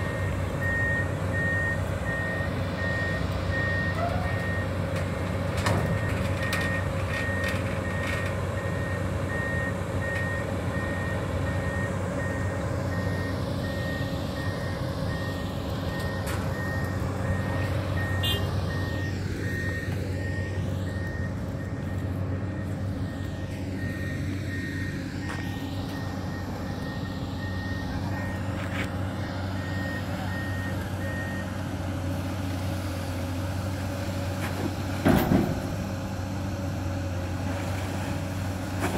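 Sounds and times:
excavator diesel engine running: 0:00.0 - 0:38.9
warning alarm beeping: 0:08.6 - 0:28.6.

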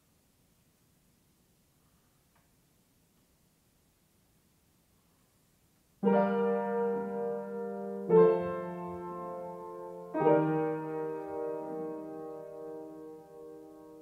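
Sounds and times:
soft piano chords: 0:06.0 - 0:14.0.

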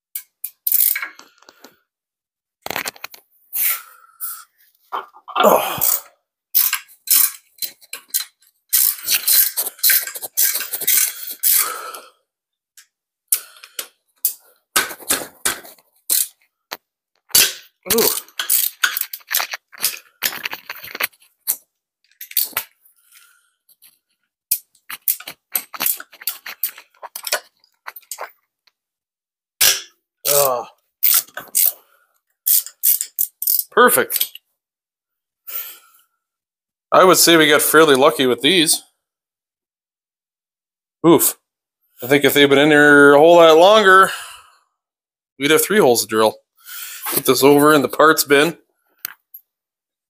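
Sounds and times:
metal socket and wrench clinking: 0:00.1 - 0:01.2, 0:06.6 - 0:11.7, 0:13.6 - 0:16.4, 0:17.3 - 0:22.7, 0:24.5 - 0:28.3, 0:31.0 - 0:31.8, 0:32.5 - 0:34.4
socket ratchet clicking: 0:32.5 - 0:33.7.

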